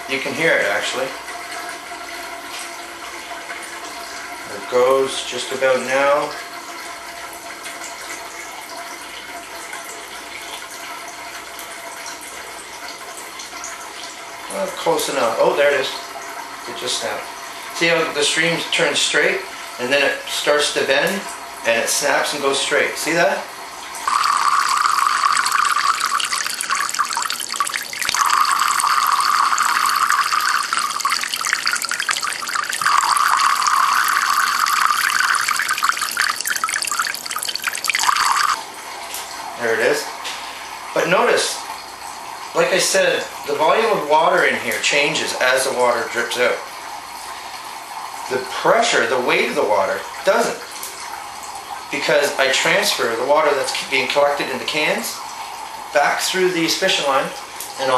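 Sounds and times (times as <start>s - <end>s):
water trickling into cans: 0.0s - 57.9s
water splashing into metal cans: 24.0s - 38.6s.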